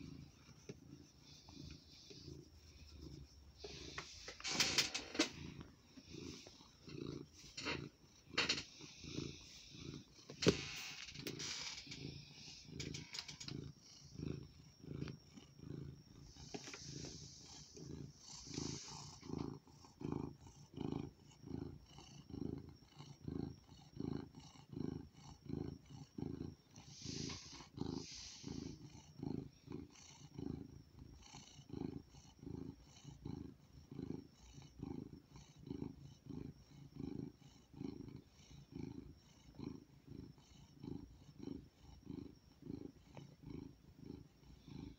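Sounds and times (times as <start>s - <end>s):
cat purring: 0.0s - 44.9s
breathy hisses: 1.1s - 7.8s, 8.5s - 14.1s, 16.2s - 19.4s, 26.8s - 29.0s.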